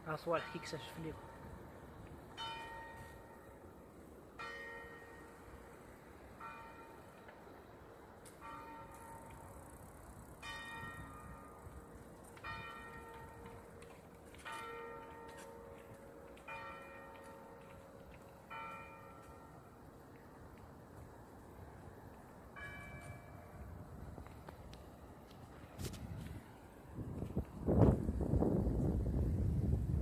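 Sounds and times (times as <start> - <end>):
church bell tolling: 0.0 - 1.7, 2.3 - 7.3, 8.4 - 9.5, 10.4 - 11.8, 12.4 - 19.8, 22.6 - 23.6.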